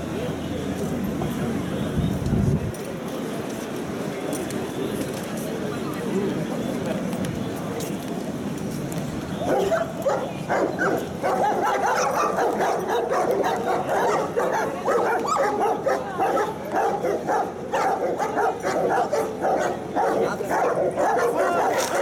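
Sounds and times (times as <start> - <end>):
dogs barking and yelping: 9.4 - 22.0.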